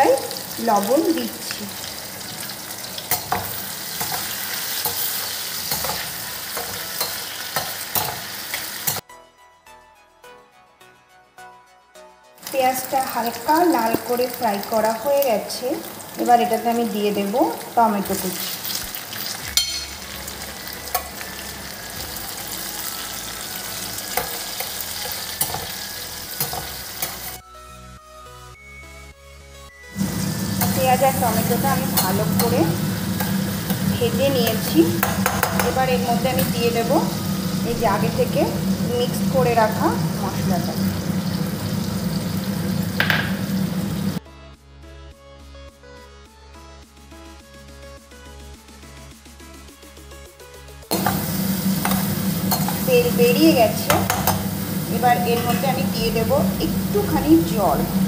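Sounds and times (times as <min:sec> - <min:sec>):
onions sizzling in hot oil: 0:00.0 - 0:09.0, 0:12.4 - 0:27.4, 0:29.9 - 0:44.2, 0:50.9 - 0:58.0
faint background music: 0:00.0 - 0:58.0
spatula tapping and scraping pan: 0:35.0 - 0:35.8, 0:53.8 - 0:54.4.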